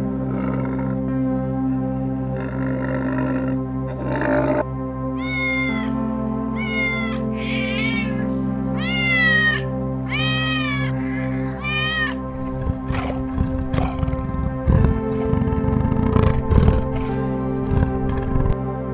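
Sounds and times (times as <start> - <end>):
music drone: 0.0 - 18.9
cat meowing: 5.2 - 6.0, 6.6 - 18.6.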